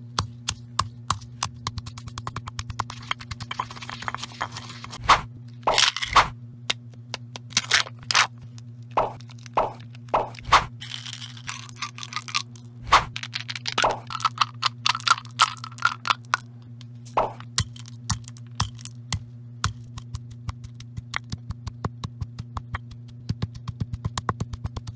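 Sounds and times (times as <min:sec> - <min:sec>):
steady low hum: 0:00.0 - 0:24.9
candy crushed in stone mortar: 0:09.1 - 0:16.4, 0:17.2 - 0:21.2.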